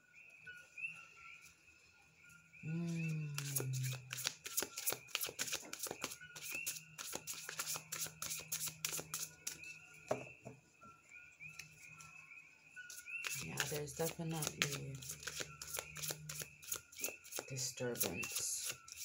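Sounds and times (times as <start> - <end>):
cards being shuffled: 3.4 - 9.6, 13.2 - 19.0.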